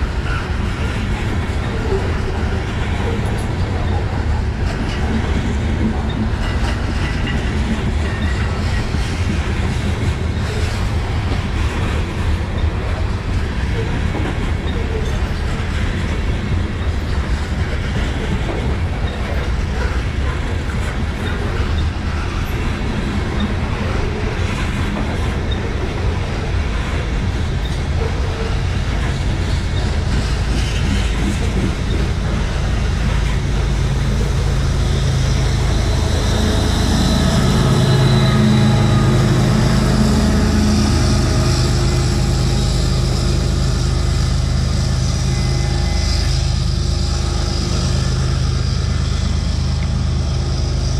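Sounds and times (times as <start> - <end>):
diesel locomotive engine hum: 0.0 - 50.9
freight cars rumbling: 0.0 - 50.9
wheel squeal: 29.8 - 50.9.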